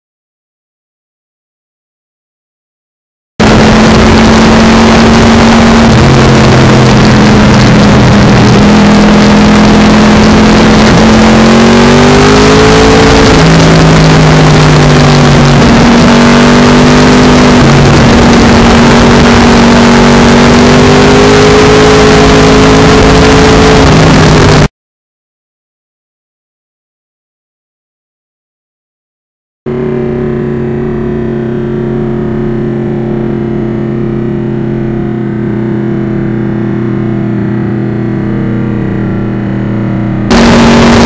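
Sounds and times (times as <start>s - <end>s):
motorcycle engine and exhaust: 3.4s - 24.7s, 29.7s - 41.0s.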